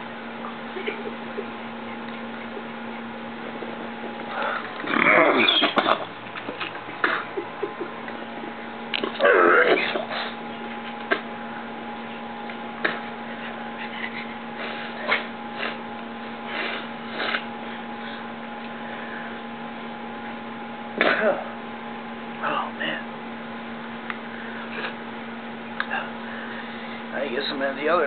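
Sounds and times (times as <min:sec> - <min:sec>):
electrical hum: 0:00.0 - 0:28.0
sniffs: 0:12.8 - 0:15.8, 0:16.5 - 0:18.3.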